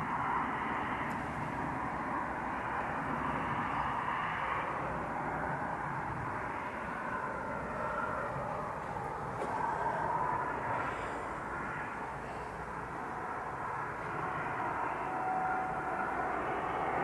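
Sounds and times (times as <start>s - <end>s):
distant traffic hum: 0.0s - 17.0s.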